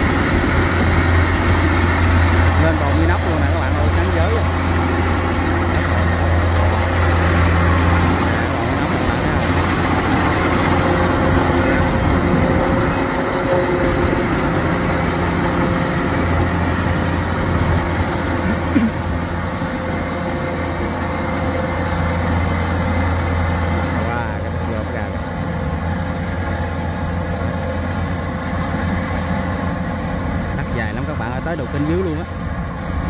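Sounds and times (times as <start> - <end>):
combine harvester engine droning: 0.0 - 33.0
threshing noise: 0.0 - 33.0.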